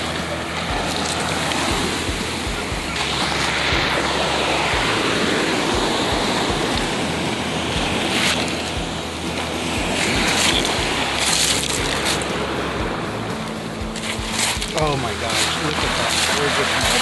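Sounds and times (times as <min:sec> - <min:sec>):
surf washing over pebbles: 0:00.0 - 0:17.0
wind rumbling on microphone: 0:00.0 - 0:17.0.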